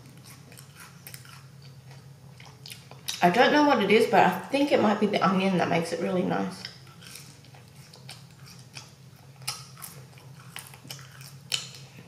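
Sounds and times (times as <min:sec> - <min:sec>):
chewing mouth clicks: 0:00.0 - 0:03.2, 0:06.6 - 0:12.0
steady low hum: 0:00.0 - 0:12.0.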